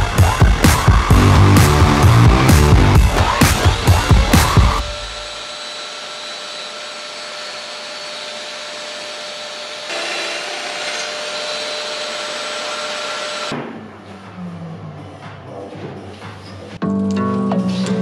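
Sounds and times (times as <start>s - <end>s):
power tool motor running: 3.0s - 13.5s.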